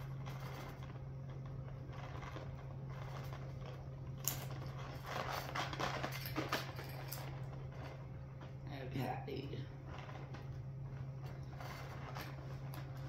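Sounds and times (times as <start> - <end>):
steady low hum: 0.0 - 13.0
metal chain clicking and rattling: 4.2 - 8.0.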